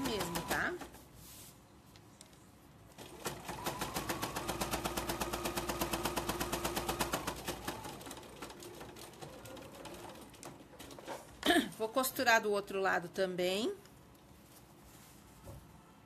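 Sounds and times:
sewing machine stitching: 0:00.0 - 0:01.0, 0:03.0 - 0:11.4.

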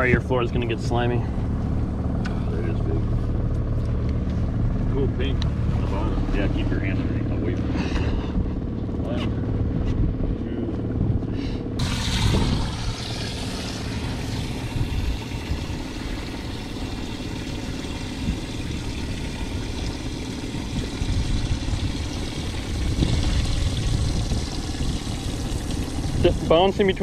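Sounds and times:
boat motor idling: 0:00.0 - 0:27.0.

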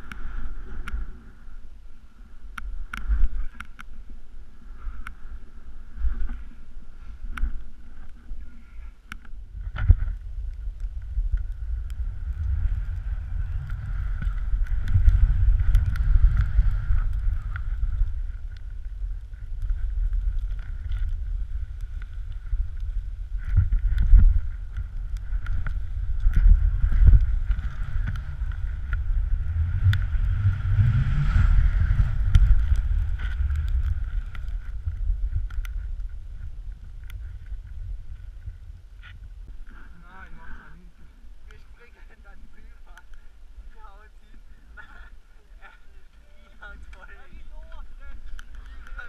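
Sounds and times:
wind buffeting microphone: 0:02.4 - 0:45.2.

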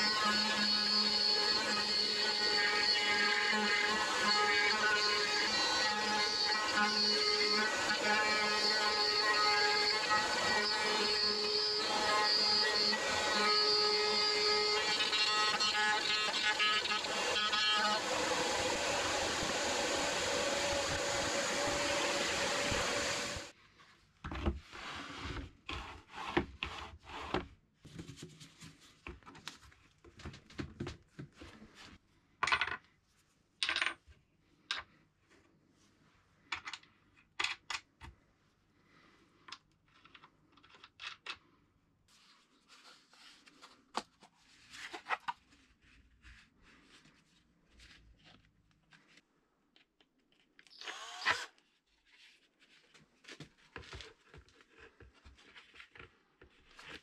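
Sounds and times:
power tool running: 0:00.0 - 0:23.5, 0:50.7 - 0:51.5
wooden pieces clicking and knocking: 0:32.4 - 0:32.8, 0:33.6 - 0:34.0, 0:36.5 - 0:38.1, 0:39.5 - 0:41.5.

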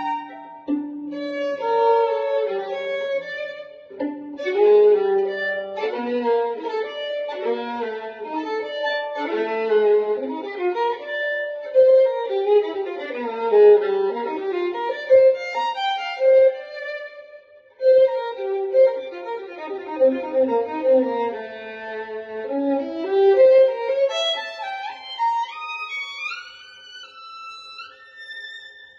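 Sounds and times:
solo violin bowed chords: 0:00.0 - 0:28.9.

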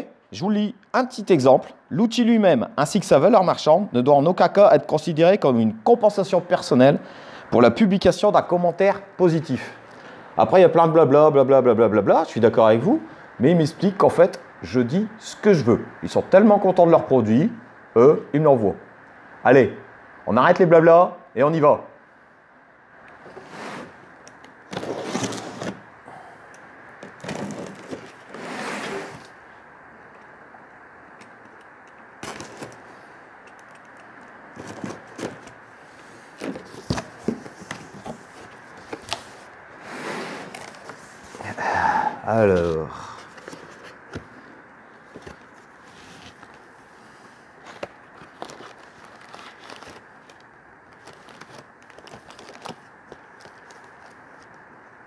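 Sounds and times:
paper and cardboard rustling: 0:24.7 - 0:25.8, 0:27.0 - 0:29.3, 0:32.2 - 0:32.9, 0:34.5 - 0:41.4, 0:43.3 - 0:44.3, 0:47.6 - 0:54.6.

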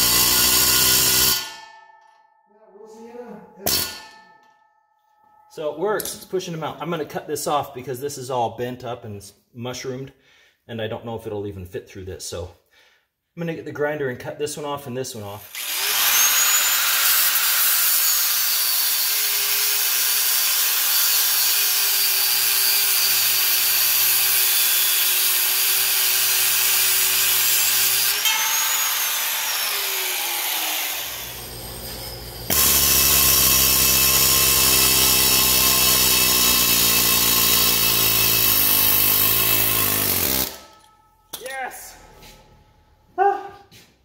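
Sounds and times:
angle grinder cutting steel: 0:00.0 - 0:01.7, 0:03.6 - 0:04.2, 0:15.4 - 0:41.0
pneumatic air hammer rattling: 0:31.8 - 0:40.8.

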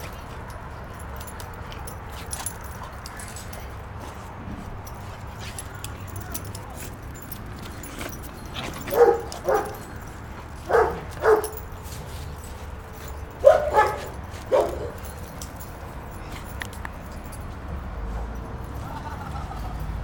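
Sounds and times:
puppy barking: 0:08.8 - 0:11.7, 0:13.4 - 0:15.2.

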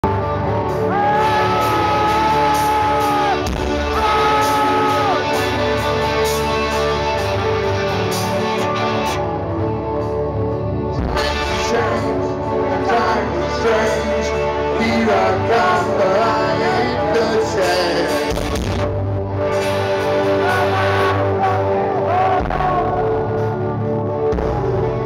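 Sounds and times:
live rock band playing: 0:00.0 - 0:09.7.

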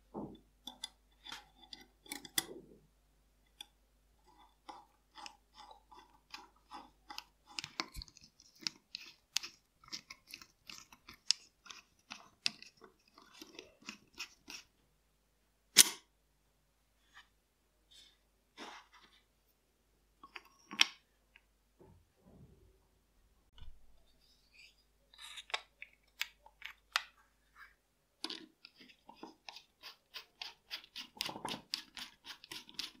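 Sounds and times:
screwdriver clicks and scrapes on metal: 0:00.6 - 0:02.6, 0:03.6 - 0:14.7, 0:28.2 - 0:33.0.

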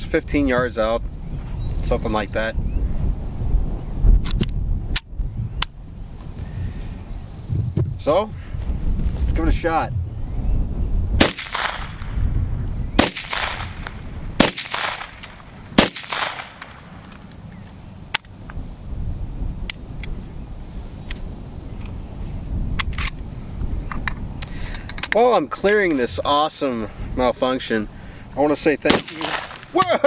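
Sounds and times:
pistol shots with echo: 0:11.2 - 0:12.2, 0:13.0 - 0:17.0, 0:28.8 - 0:30.0.

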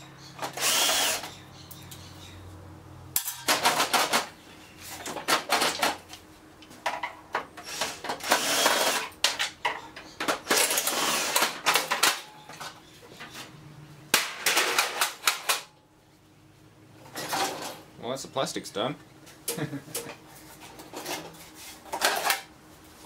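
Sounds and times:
cordless drill bursts: 0:00.5 - 0:01.3, 0:07.7 - 0:09.1, 0:10.7 - 0:11.5.

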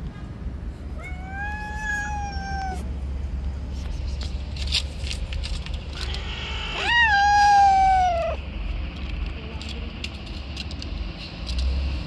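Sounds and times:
cats yowling: 0:01.0 - 0:02.9, 0:06.0 - 0:08.4.

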